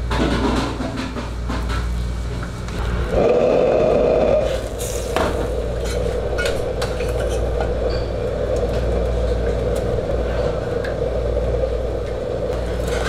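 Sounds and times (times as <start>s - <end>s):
steady roar: 2.8s - 13.0s.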